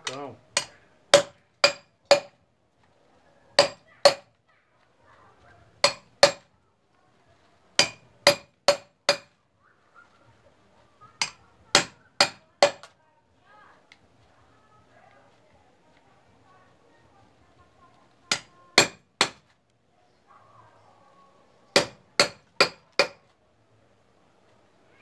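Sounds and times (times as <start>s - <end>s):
hammer striking metal blade: 5.8s - 6.4s, 7.8s - 9.3s.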